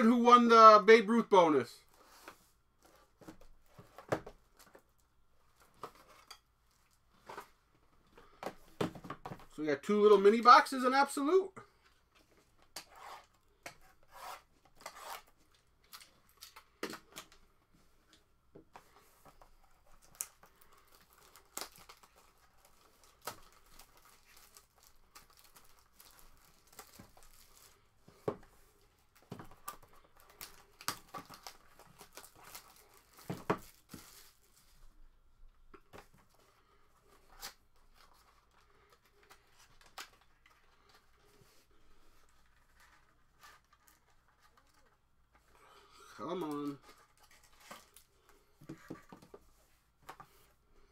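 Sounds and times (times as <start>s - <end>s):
cellophane crinkling and tearing: 20.0s - 27.8s, 29.6s - 34.7s.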